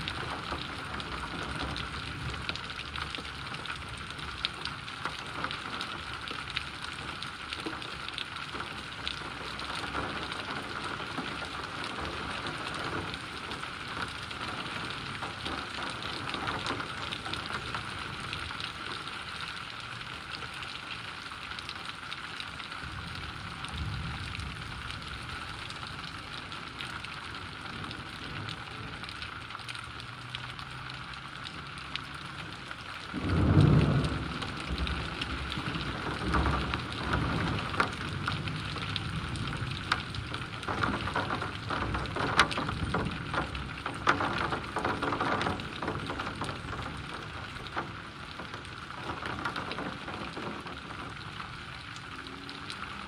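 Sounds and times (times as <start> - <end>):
thunder clap and rumble: 0.0 - 6.1, 7.1 - 18.6, 22.8 - 26.4, 33.1 - 51.5
heavy rain: 0.0 - 53.0.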